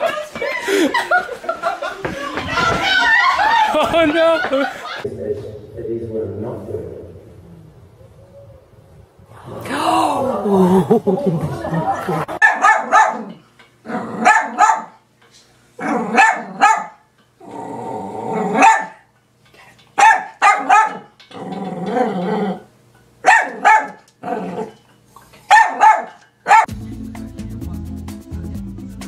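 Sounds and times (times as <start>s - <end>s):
small dog barking: 12.4s - 13.4s, 14.2s - 15.0s, 15.9s - 17.0s, 18.5s - 19.0s, 20.0s - 21.1s, 23.2s - 24.0s, 25.5s - 26.7s
dog growling: 13.2s - 14.3s, 15.8s - 16.6s, 17.4s - 18.6s, 21.3s - 22.7s, 24.2s - 24.8s.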